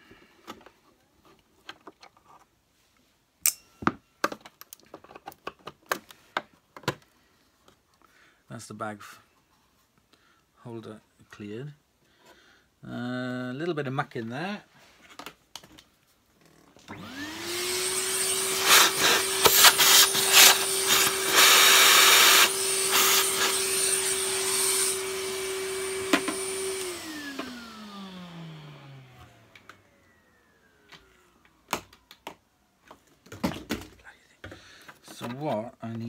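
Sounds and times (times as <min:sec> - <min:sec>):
vacuum cleaner motor whine: 0:16.8 - 0:32.1.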